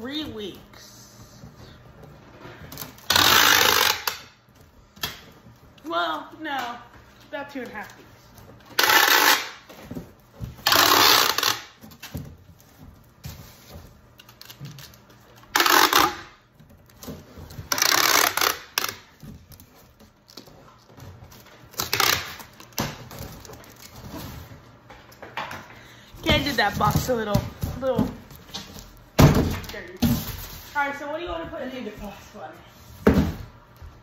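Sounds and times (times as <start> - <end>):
tape dispenser clicks and rattles: 2.7 - 4.3, 8.6 - 9.7, 10.6 - 12.2, 14.2 - 19.7, 21.3 - 24.0
packing tape screeching off tape gun: 2.8 - 4.4, 8.7 - 9.7, 10.6 - 12.0, 14.2 - 16.4, 17.6 - 19.3, 21.7 - 22.9.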